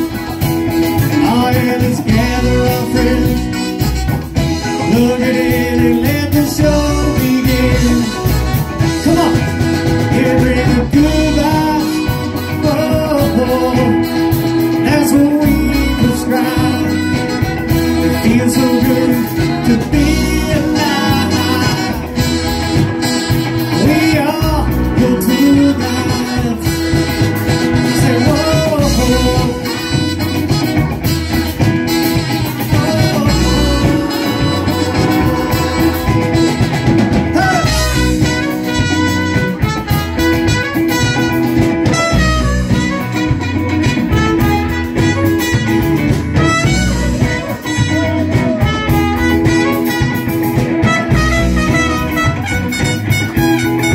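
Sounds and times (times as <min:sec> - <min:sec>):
lead singer singing: 0:00.0 - 0:23.0, 0:23.7 - 0:30.2, 0:32.1 - 0:38.4
live band playing: 0:00.0 - 0:53.9.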